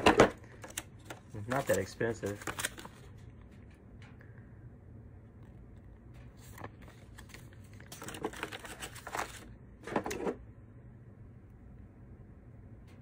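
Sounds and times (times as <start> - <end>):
paper rustling: 0.0 - 3.3, 6.2 - 10.4.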